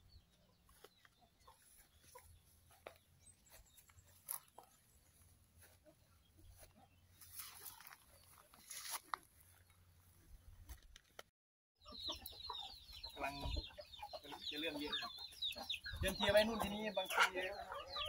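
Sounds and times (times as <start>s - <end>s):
soft rustle: 6.6s - 9.7s.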